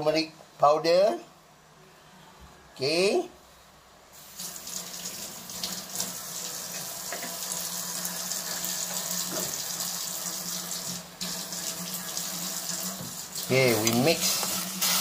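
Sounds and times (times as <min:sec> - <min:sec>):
pot hissing and sizzling: 0:04.1 - 0:15.0.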